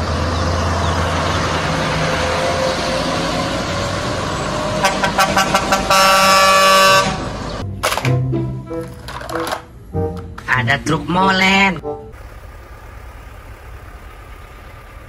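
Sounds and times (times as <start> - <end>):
truck diesel engines rumbling: 0.0 - 15.0
truck air horn: 4.8 - 7.5.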